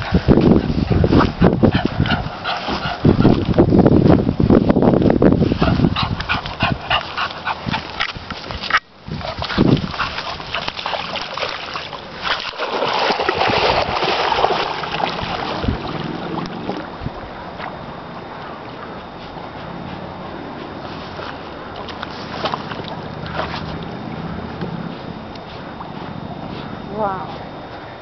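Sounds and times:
water splashing: 6.3 - 19.0, 20.8 - 26.2.

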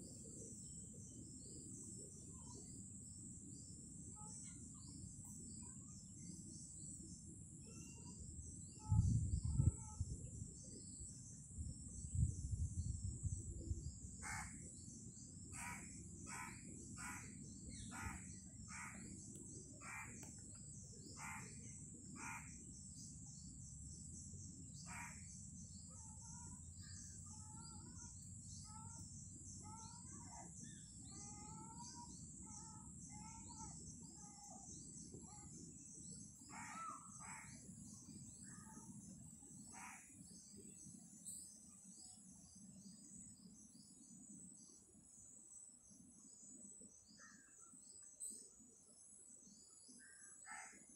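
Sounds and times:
birds calling: 15.6 - 20.5, 21.1 - 22.6, 24.8 - 25.3, 36.4 - 37.7.

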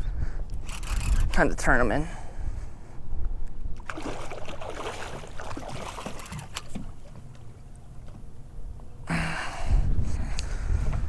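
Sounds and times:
water splashing against boat hull: 3.8 - 8.2.

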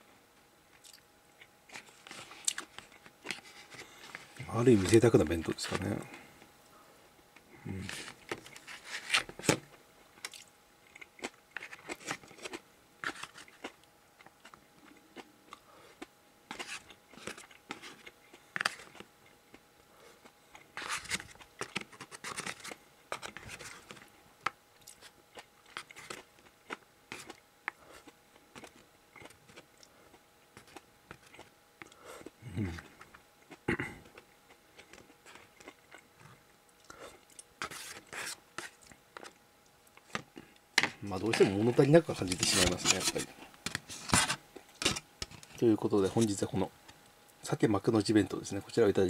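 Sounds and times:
person chewing: 0.7 - 4.3, 10.2 - 24.0, 24.8 - 40.6.

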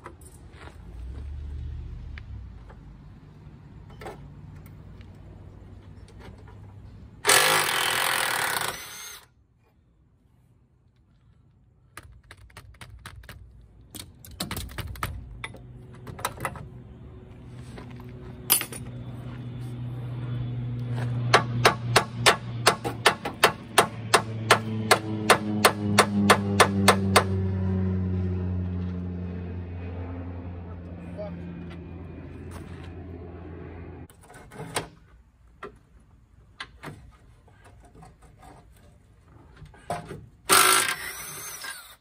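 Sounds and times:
low engine drone: 15.0 - 34.1.

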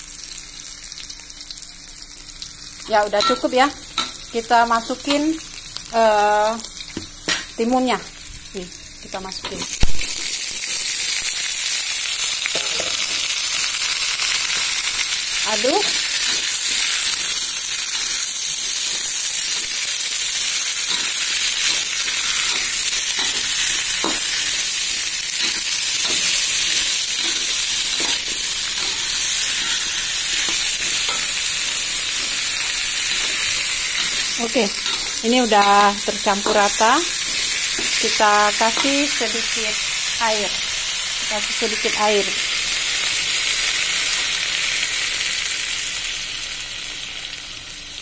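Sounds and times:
vegetables sizzling in hot oil: 0.0 - 48.0
metal spatula scraping a wok: 20.8 - 24.5.

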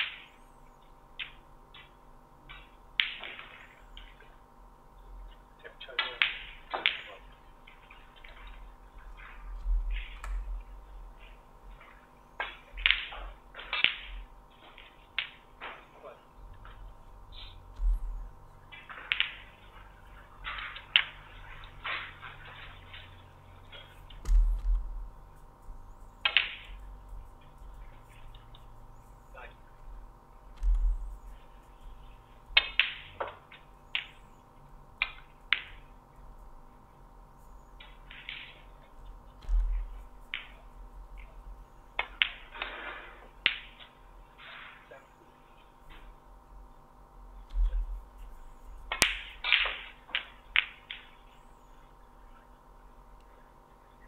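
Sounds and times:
dull heavy thump: 17.7 - 18.3, 24.2 - 25.1, 30.5 - 31.2, 39.4 - 40.2
snooker balls clicking: 18.8 - 19.8.

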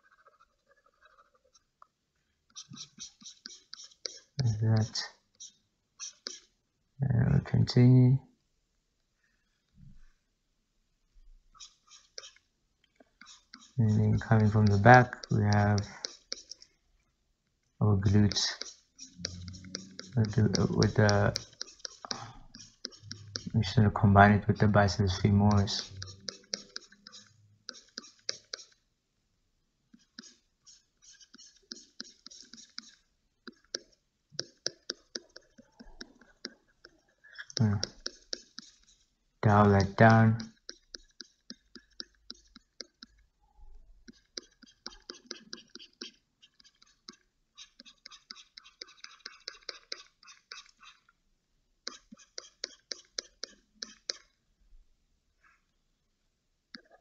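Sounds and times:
computer mouse clicking: 11.6 - 12.4, 13.2 - 16.7, 18.3 - 23.6, 25.5 - 28.8, 30.0 - 39.0, 39.8 - 43.2, 44.0 - 51.0, 51.9 - 54.3.

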